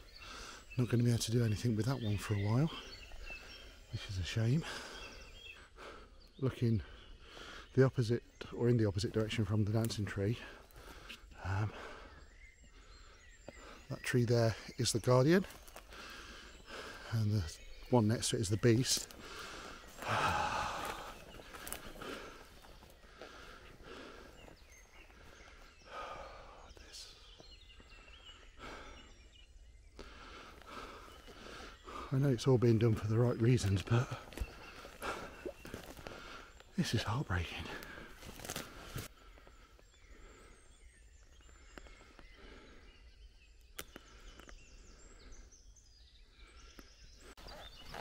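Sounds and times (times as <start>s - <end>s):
faint bird chirps: 0.0s - 48.0s
faint clicks: 41.5s - 42.2s, 43.6s - 44.6s.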